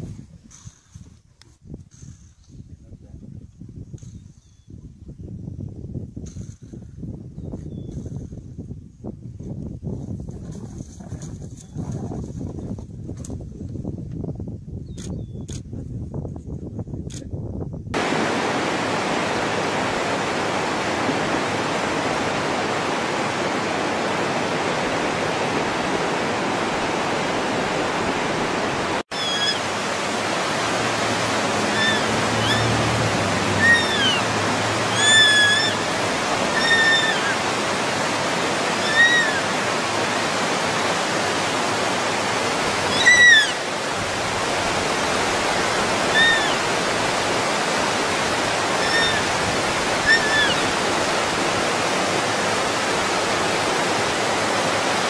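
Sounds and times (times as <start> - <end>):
steady rushing hiss: 18.0 - 42.9
high-pitched animal calls: 29.1 - 29.6, 31.6 - 32.8, 33.6 - 35.9, 36.5 - 37.4, 38.8 - 39.5, 42.9 - 43.6, 46.1 - 46.6, 48.7 - 49.3, 50.0 - 50.7.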